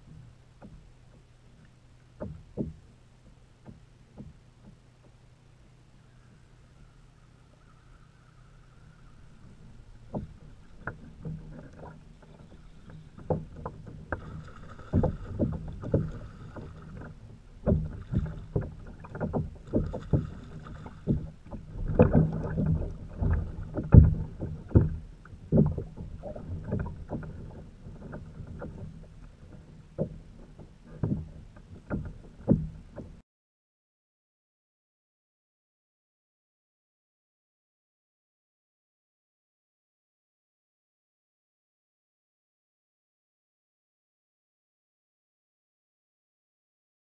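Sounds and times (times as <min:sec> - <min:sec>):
knocks and thumps on kayak hull: 0:00.0 - 0:01.3, 0:02.2 - 0:05.2, 0:09.5 - 0:33.2.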